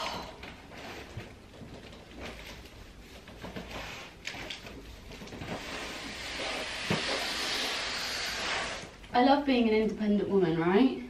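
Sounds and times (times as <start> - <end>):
box scraping on wooden floor: 5.3 - 8.9.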